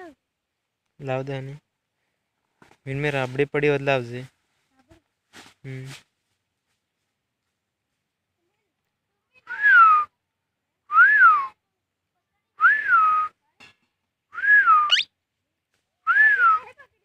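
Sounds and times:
parakeet whistling: 0:14.7 - 0:15.1
parakeet squeak: 0:14.9 - 0:15.1.

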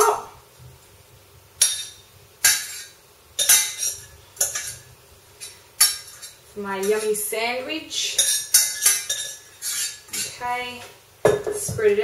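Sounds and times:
metal spoon scraping saucepan: 0:01.6 - 0:07.2, 0:08.0 - 0:10.5.

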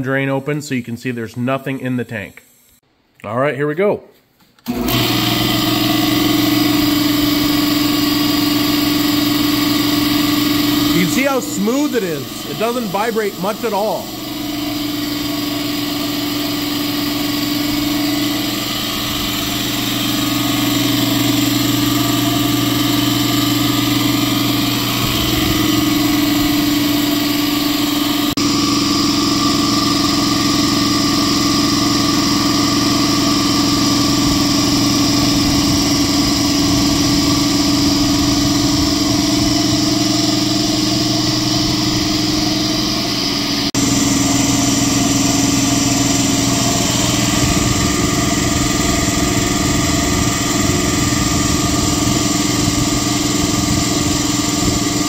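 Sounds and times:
air compressor running: 0:00.0 - 0:02.8, 0:04.6 - 0:55.0.

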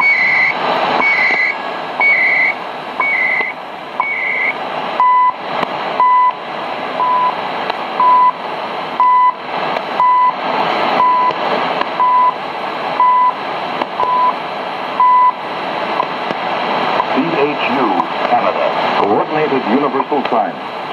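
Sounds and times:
short time signal beeps: 0:00.0 - 0:05.4, 0:06.0 - 0:06.4, 0:08.0 - 0:08.4, 0:09.0 - 0:09.4, 0:10.0 - 0:10.4, 0:11.0 - 0:11.3, 0:12.0 - 0:12.4, 0:13.0 - 0:13.4, 0:14.0 - 0:14.4, 0:15.0 - 0:15.4
shortwave static hiss: 0:00.0 - 0:20.9.

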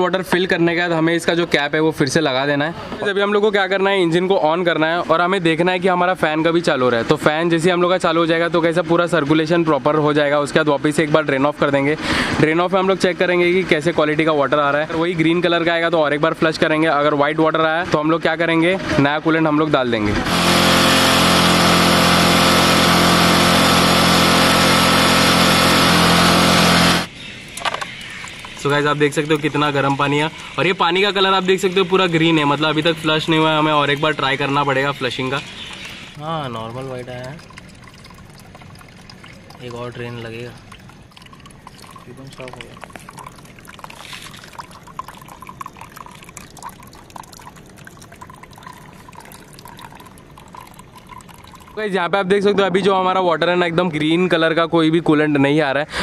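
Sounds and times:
water trickling into a tub: 0:26.3 - 0:52.7.

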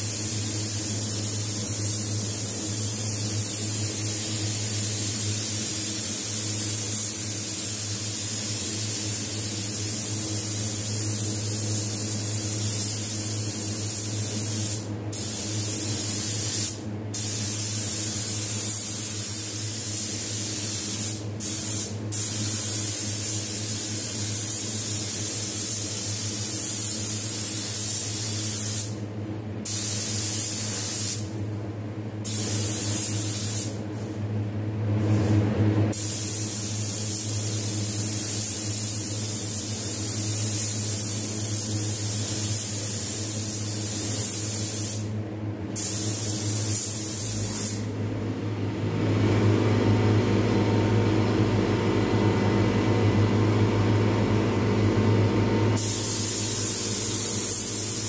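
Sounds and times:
paint spray gun hissing: 0:00.0 - 0:29.0, 0:29.6 - 0:31.3, 0:32.2 - 0:33.8, 0:35.9 - 0:45.1, 0:45.8 - 0:47.8, 0:55.8 - 0:58.0.

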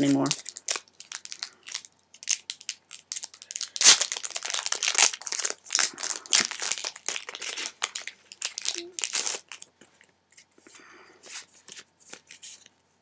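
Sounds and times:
foil wrapper crinkling: 0:00.0 - 0:09.7.

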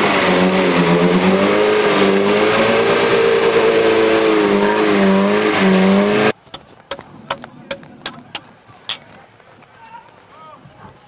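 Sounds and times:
engine at high revs: 0:00.0 - 0:06.4.

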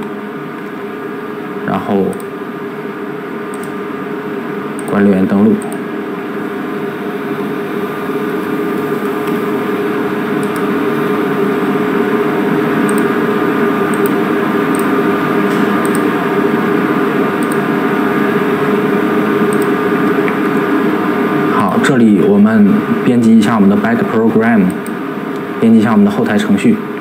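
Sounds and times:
steady machine hum: 0:00.0 - 0:27.0.

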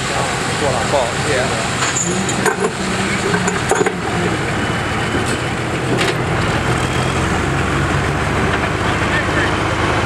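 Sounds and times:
tractor engine under load: 0:00.0 - 0:10.0.

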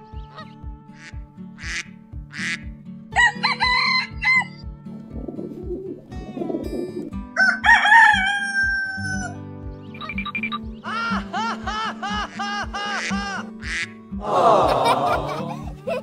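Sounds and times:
background music with beat: 0:00.0 - 0:07.3
rooster crowing: 0:03.2 - 0:04.6, 0:07.4 - 0:09.4.

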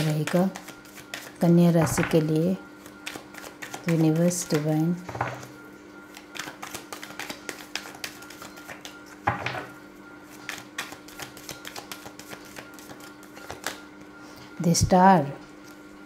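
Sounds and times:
cards being shuffled: 0:00.0 - 0:04.6, 0:06.1 - 0:09.0, 0:10.4 - 0:13.8.

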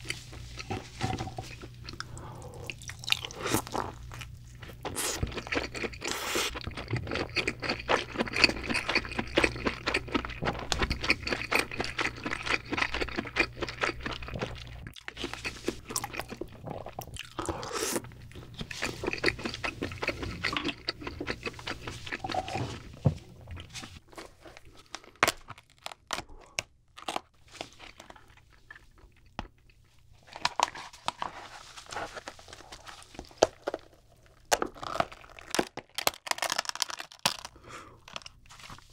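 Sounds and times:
chewing crab meat: 0:00.0 - 0:23.0, 0:23.6 - 0:31.3
crab shell cracking: 0:34.5 - 0:38.3.

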